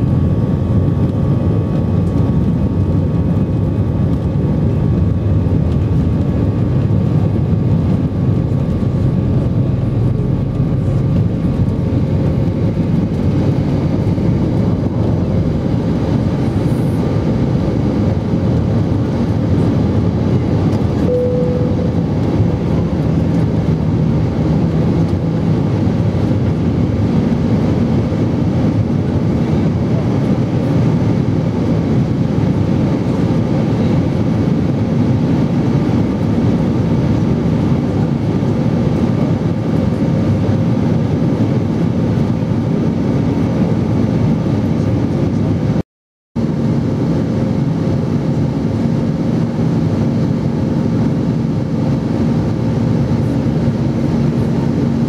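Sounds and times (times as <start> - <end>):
jet engine drone: 0.0 - 45.8, 46.4 - 55.0
low hum: 0.0 - 45.8, 46.4 - 55.0
rushing air: 3.3 - 26.3.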